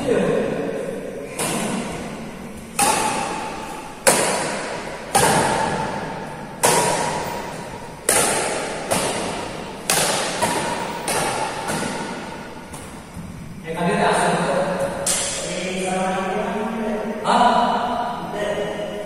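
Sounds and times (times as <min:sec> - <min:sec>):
racket hitting shuttlecock: 0:01.2 - 0:13.2, 0:14.8 - 0:15.4.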